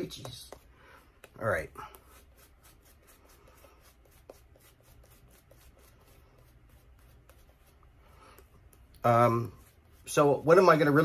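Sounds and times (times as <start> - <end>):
razor scratching stubble: 1.3 - 7.8.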